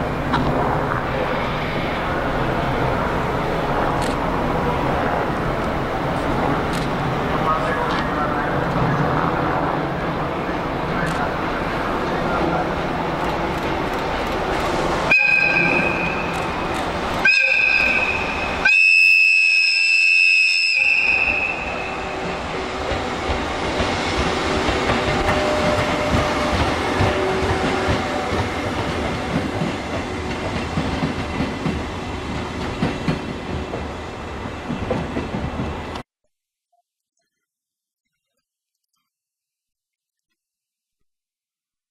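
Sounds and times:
train rumble: 0.0s - 18.7s, 20.9s - 36.0s
locomotive horn blasts: 15.1s - 16.3s, 17.2s - 22.0s.

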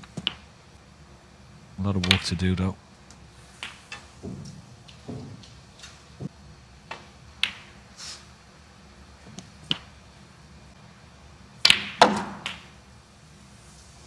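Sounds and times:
snooker balls clacking: 3.6s - 5.6s, 6.9s - 7.8s, 11.6s - 12.8s
cue tip striking ball: 11.6s - 12.8s.

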